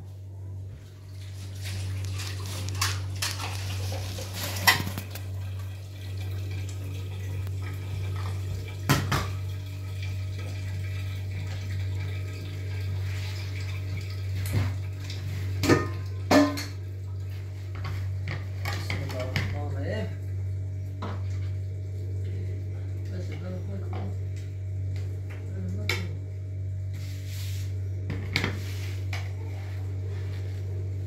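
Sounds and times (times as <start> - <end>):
steady low hum: 0.0 - 31.0
dishes and metal pot clinking: 15.6 - 16.8.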